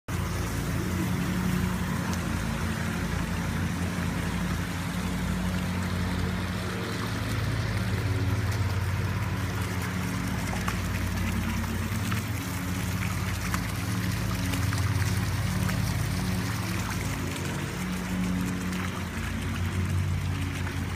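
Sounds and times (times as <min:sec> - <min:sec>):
low steady hum: 0:00.1 - 0:20.9
water jets splashing: 0:00.1 - 0:20.9
waterfall pouring into pool: 0:00.1 - 0:20.9.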